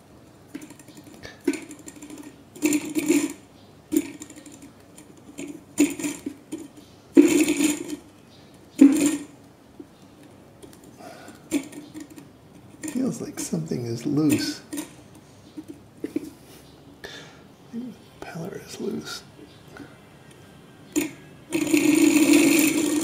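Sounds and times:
small engine mechanism clattering: 0.5 - 16.3, 20.9 - 23.0.

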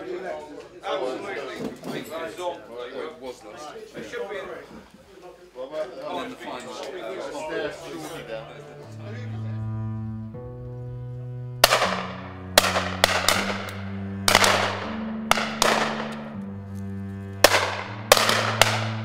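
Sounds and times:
bowed string music: 6.6 - 19.0
shotgun shots: 11.6 - 16.2, 17.4 - 19.0.

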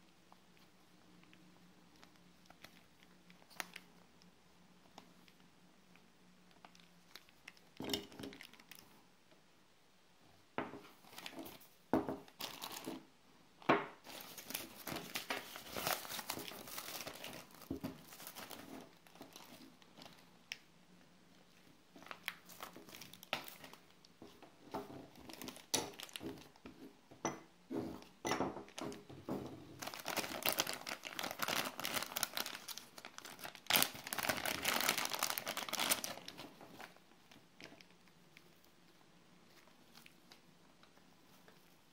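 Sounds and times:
plastic bags crinkling: 6.6 - 9.0, 11.0 - 13.1, 14.0 - 20.4, 22.0 - 23.9, 25.0 - 26.6, 28.6 - 37.9.

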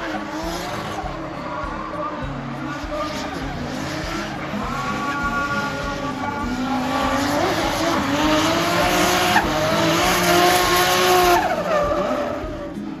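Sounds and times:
car engine revving hard: 0.0 - 13.0
rushing tyre noise: 0.0 - 13.0
tyre squeal: 7.2 - 12.9.

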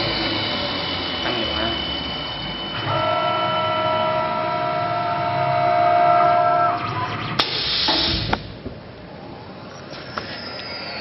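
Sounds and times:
lathe whining and grinding: 0.0 - 7.3
burst of hissing: 7.4 - 8.4.

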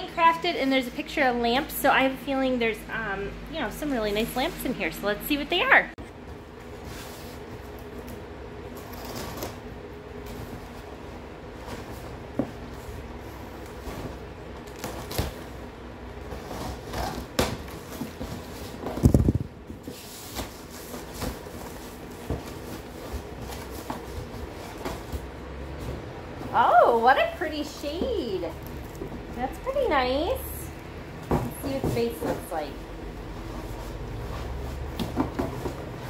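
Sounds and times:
packing tape tearing: 8.8 - 9.7, 16.3 - 18.0
cardboard scraping and rustling: 16.2 - 26.1.

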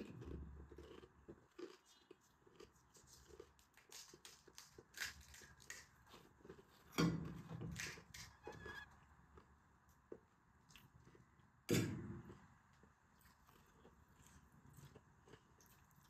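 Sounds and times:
close-up chewing crunches: 0.0 - 8.3, 12.3 - 16.0.

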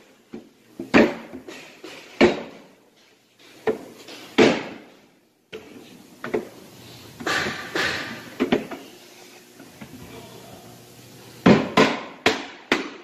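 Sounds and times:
wooden panels knocking and thumping: 0.8 - 2.6, 3.6 - 4.9, 7.2 - 8.7, 11.4 - 13.0.

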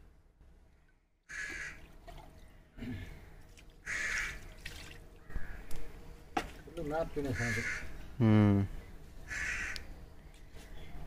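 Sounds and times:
crows cawing: 1.3 - 1.9, 3.2 - 4.6, 5.2 - 5.8, 7.2 - 8.0, 9.2 - 9.9.

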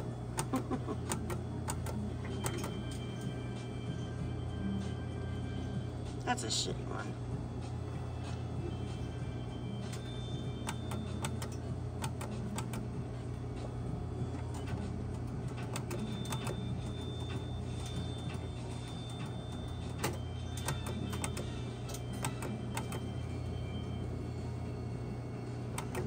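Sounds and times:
steady low hum: 0.0 - 26.0.

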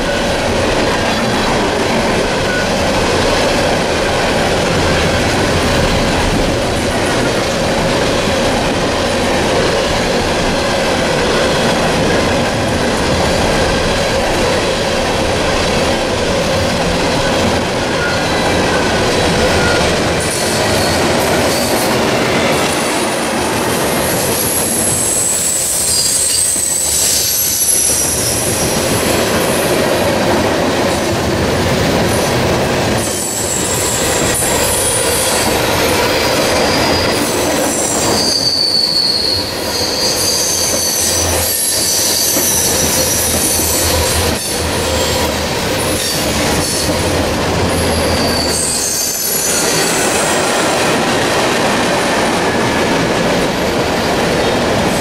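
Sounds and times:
freight train passing: 0.0 - 55.0
wheel squeals: 24.0 - 28.6, 33.2 - 45.3, 47.8 - 50.5.

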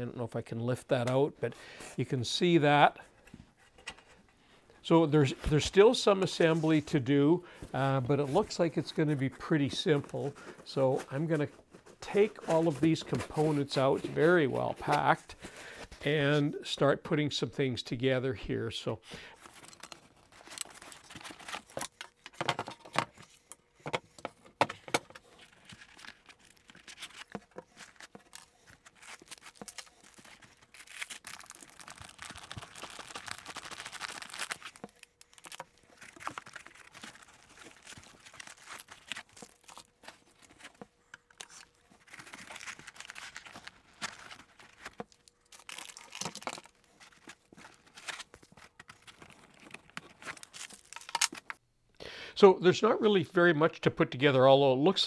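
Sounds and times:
plastic bags and foam crinkling: 5.5 - 16.4, 19.2 - 23.4, 25.0 - 51.6.

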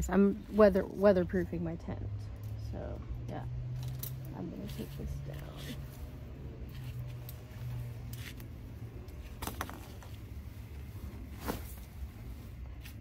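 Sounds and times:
tent fabric swishing: 10.2 - 13.0.

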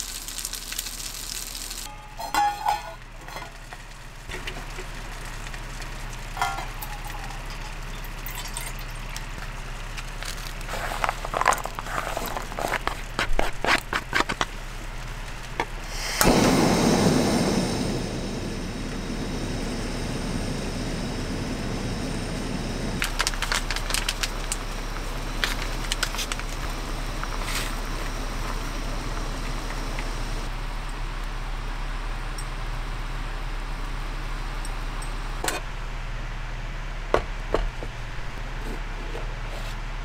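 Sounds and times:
gas burner hissing: 0.0 - 8.3, 8.9 - 30.6.

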